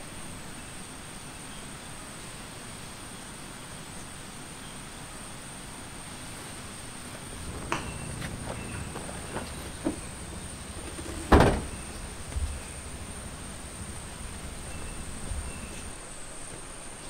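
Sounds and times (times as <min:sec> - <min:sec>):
faint knocks: 0:07.2 - 0:16.7
car tailgate slamming shut: 0:07.3 - 0:15.9.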